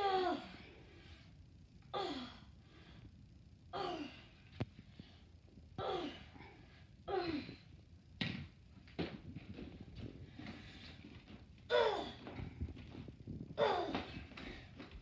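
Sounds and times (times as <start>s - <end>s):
girl grunting with effort: 0.0s - 0.6s, 1.9s - 2.4s, 3.8s - 4.3s, 5.8s - 6.4s, 7.1s - 7.6s, 11.7s - 12.3s, 13.6s - 14.2s.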